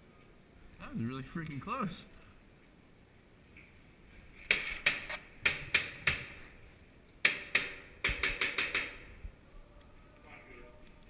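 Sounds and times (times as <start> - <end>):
airsoft gun shots: 7.2 - 9.1.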